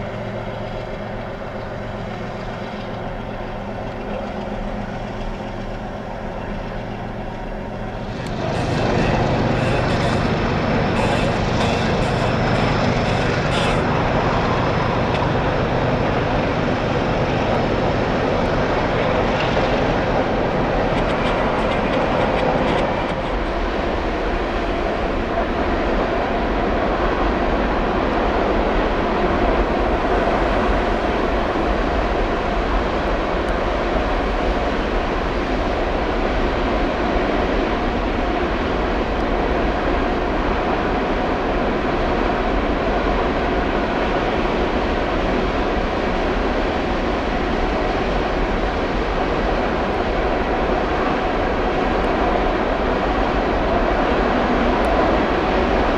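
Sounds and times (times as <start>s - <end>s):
faint steady whine: 0.0s - 27.0s
train wheels rumbling on rail: 0.0s - 55.9s.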